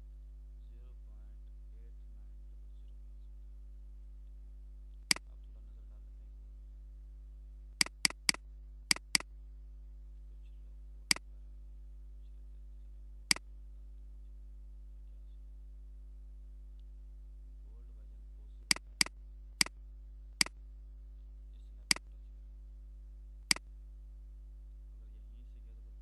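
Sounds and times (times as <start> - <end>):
low electrical hum: 0.0 - 26.0
computer mouse clicking: 7.8 - 9.2, 18.7 - 19.1.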